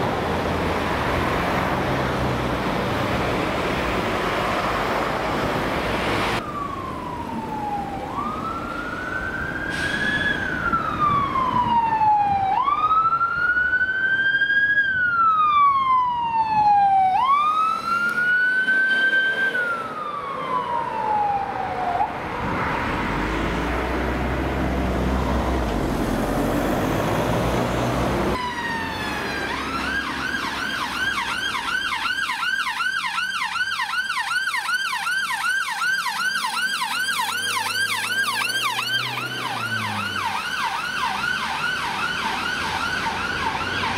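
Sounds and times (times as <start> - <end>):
police siren wailing: 6.3 - 23.1, 27.5 - 43.9
ambulance siren yelping: 6.4 - 22.2, 28.3 - 43.9.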